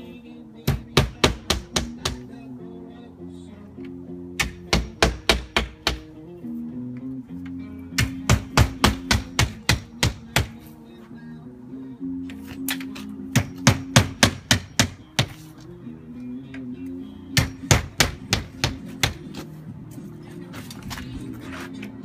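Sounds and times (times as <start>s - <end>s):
radio playing music: 0.0s - 22.0s
hammer striking nails: 0.6s - 2.3s, 4.4s - 6.1s, 8.0s - 10.6s, 12.7s - 15.4s, 17.4s - 19.4s.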